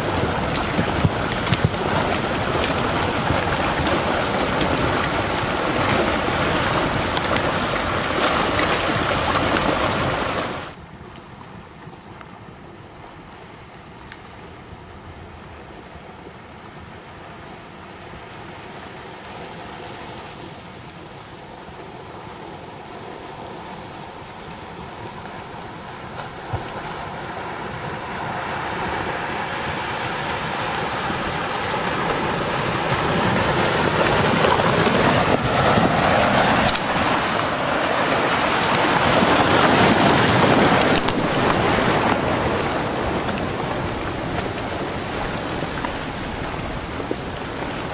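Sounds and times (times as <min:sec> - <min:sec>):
debris flow rushing: 0:00.0 - 0:10.8, 0:26.3 - 0:47.9.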